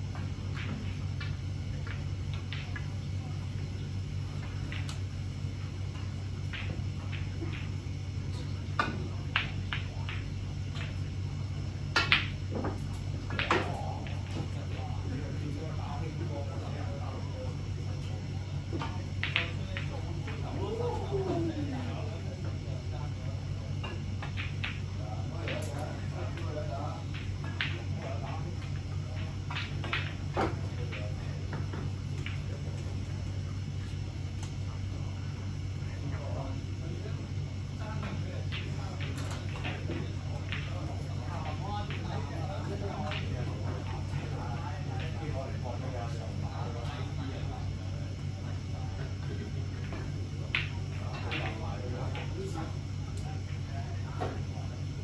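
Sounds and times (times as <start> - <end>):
steady low hum: 0.0 - 55.0
snooker balls clicking: 0.2 - 3.0, 4.4 - 5.0, 6.0 - 7.8, 8.8 - 11.0, 18.7 - 20.4, 23.8 - 34.6, 37.8 - 45.5, 49.7 - 53.5.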